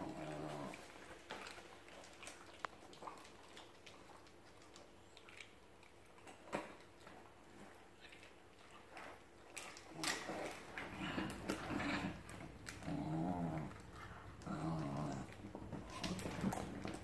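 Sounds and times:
dogs play growling: 0:00.0 - 0:01.6, 0:09.6 - 0:17.0
dogs mouthing and scuffling: 0:00.0 - 0:17.0.

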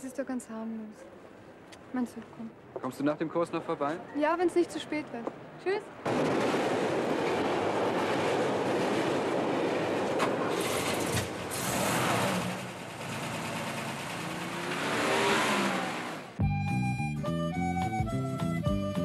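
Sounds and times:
road noise: 0:00.0 - 0:16.4
fire engine revving: 0:09.6 - 0:16.4.

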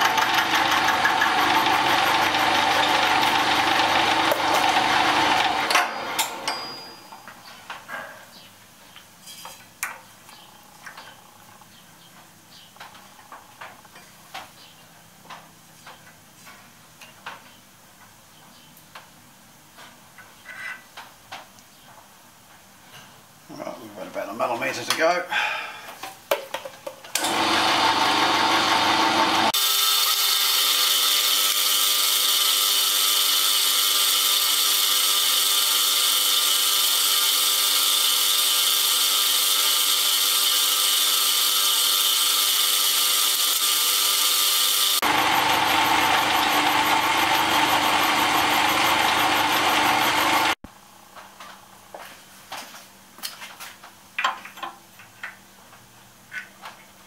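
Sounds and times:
milling machine cutting metal: 0:00.0 - 0:07.3, 0:27.2 - 0:50.6.

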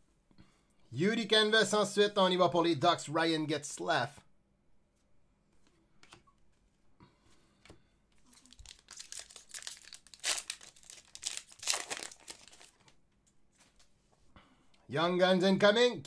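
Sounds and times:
foil wrapper crinkling: 0:08.2 - 0:13.0.

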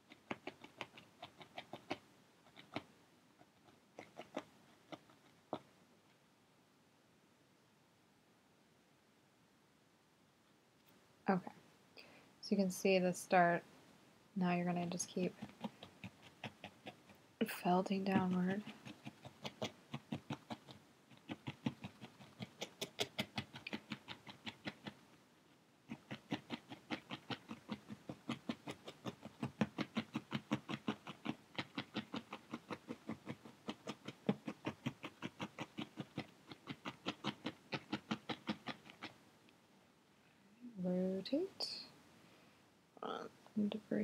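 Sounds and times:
felting needle poking wool: 0:00.0 - 0:06.2, 0:14.4 - 0:39.6.

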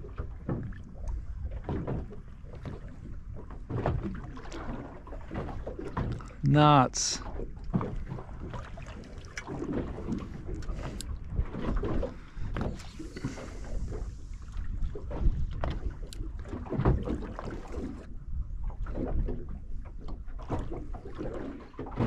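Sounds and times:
water slapping against hull: 0:00.0 - 0:22.0
wind buffeting microphone: 0:09.5 - 0:21.0.

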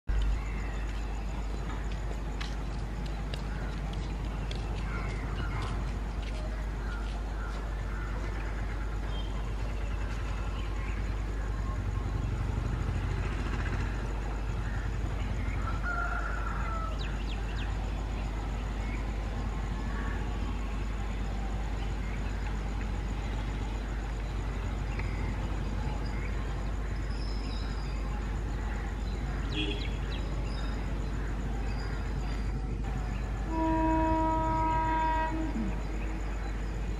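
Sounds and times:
rooster crowing: 0:15.6 - 0:17.1.

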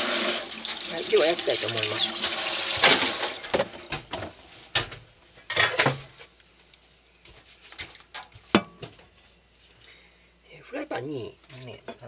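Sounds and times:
frying pan and bowl knocking: 0:08.5 - 0:09.0.

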